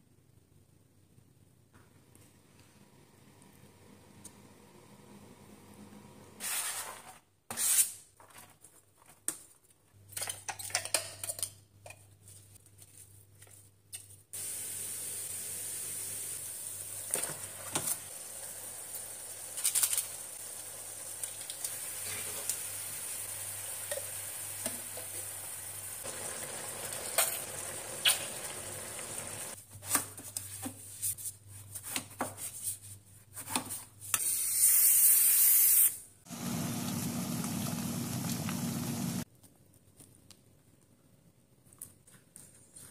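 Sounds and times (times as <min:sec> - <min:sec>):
meat sauce sizzling in pan: 0:14.4 - 0:29.6, 0:36.3 - 0:39.2.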